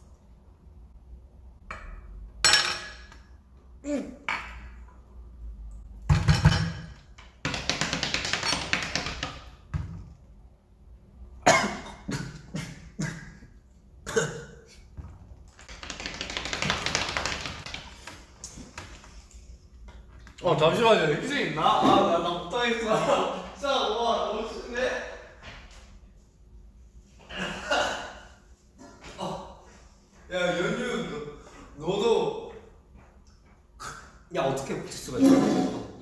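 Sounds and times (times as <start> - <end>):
man coughing: 11.4 - 13.4, 14.0 - 14.8, 27.3 - 29.0.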